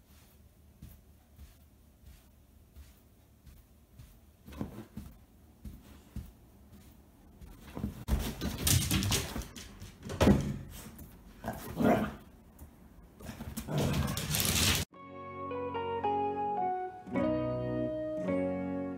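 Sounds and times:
dogs scuffling on leather sofa: 4.0 - 9.6.

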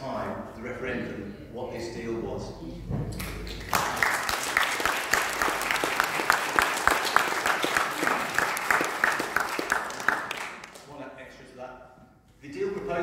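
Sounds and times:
audience applauding: 3.2 - 10.9
nearby hands clapping: 3.2 - 10.9.

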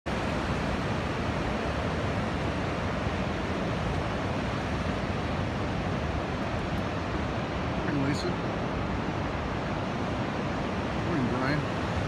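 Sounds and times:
ocean surf breaking: 0.1 - 12.0.

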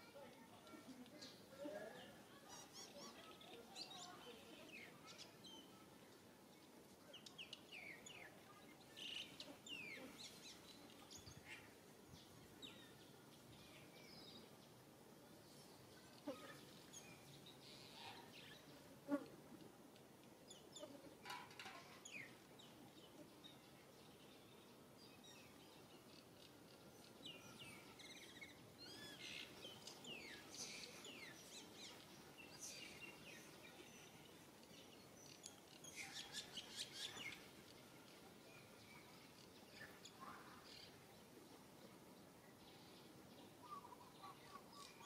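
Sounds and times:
faint bird chirps: 42.5 - 45.0.

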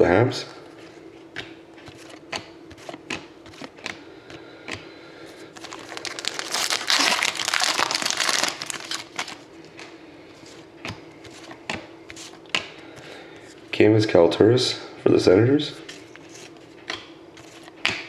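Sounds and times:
card pack wrapper crinkling: 5.5 - 9.5.

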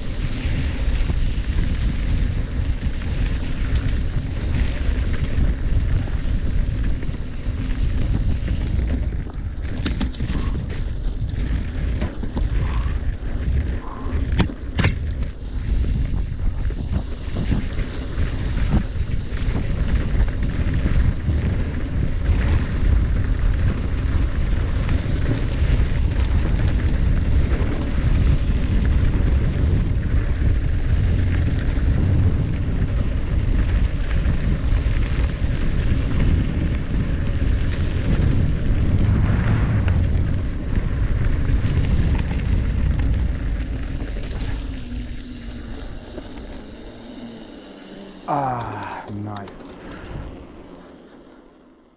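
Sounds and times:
tyres rolling over dirt: 0.0 - 48.3
wind buffeting microphone: 0.0 - 51.3
bike rattling: 0.0 - 51.9
sharp clicks: 48.0 - 50.2.

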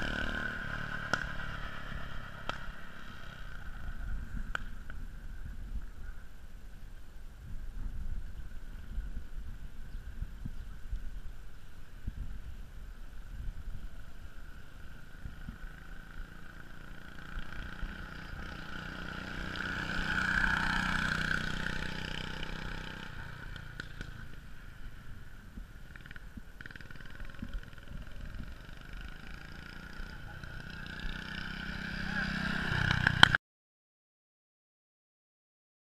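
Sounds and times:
go-kart engine passing: 0.0 - 5.5, 13.9 - 33.4.

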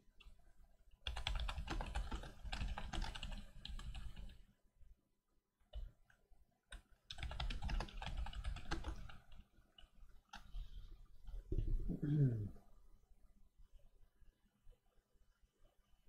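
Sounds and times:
rapid typing on a keyboard: 1.0 - 4.4, 6.7 - 10.7.

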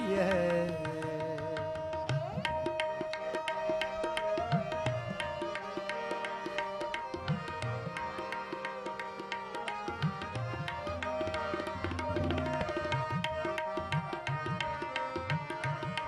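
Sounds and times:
person singing: 0.0 - 2.3
harmonium notes held: 0.0 - 16.0
tabla strokes: 0.0 - 16.0.

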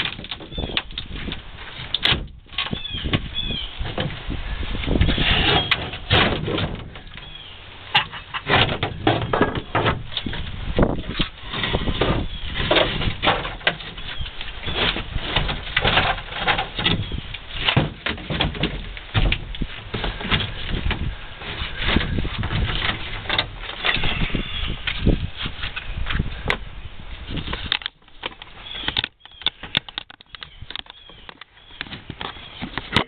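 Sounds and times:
wood creaking and splitting: 0.0 - 33.0
metal tool prying and scraping wood: 4.9 - 26.6, 27.3 - 33.0
short squeaks: 5.0 - 6.1, 23.7 - 25.1.

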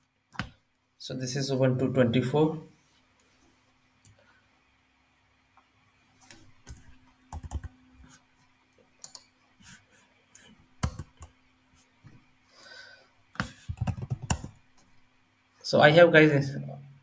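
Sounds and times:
faint steady hum: 0.0 - 17.0
computer keyboard keystrokes: 6.6 - 7.7, 9.0 - 9.3, 10.8 - 11.3, 13.4 - 14.6.

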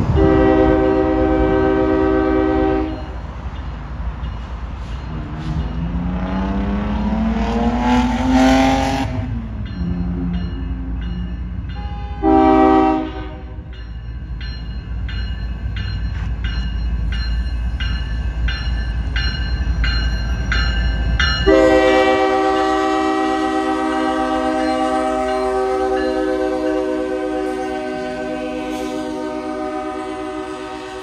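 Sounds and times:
locomotive air horn blasts: 0.0 - 3.2, 11.8 - 13.7, 21.4 - 31.0
freight train rumbling past: 0.0 - 31.0
locomotive bell dinging: 0.1 - 6.4, 9.2 - 31.0.

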